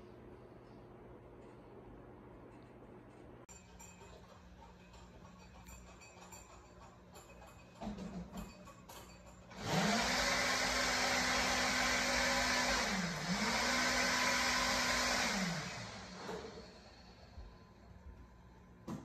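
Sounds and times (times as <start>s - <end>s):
small electric motor whirring: 9.5s - 17.0s.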